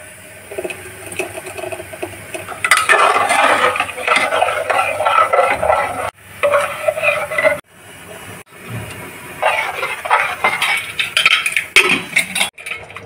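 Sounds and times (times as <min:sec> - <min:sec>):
spoon stirring chickpeas in metal pot: 0:02.3 - 0:07.6, 0:09.4 - 0:13.0.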